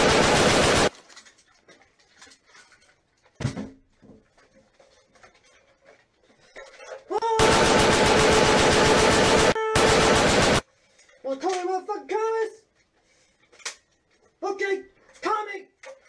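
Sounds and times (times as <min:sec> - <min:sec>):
automatic gunfire: 0:00.0 - 0:00.9, 0:07.4 - 0:10.6
faint rustling and handling: 0:00.9 - 0:07.1, 0:10.7 - 0:16.0.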